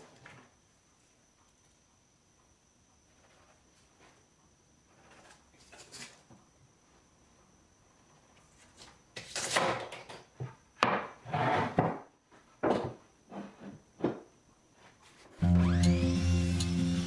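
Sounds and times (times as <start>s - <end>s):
board scraping on wood: 11.2s - 12.0s.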